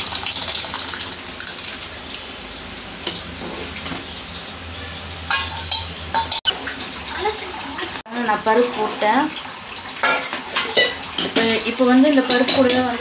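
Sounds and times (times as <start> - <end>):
metal scraping steel vessel: 5.3 - 6.5.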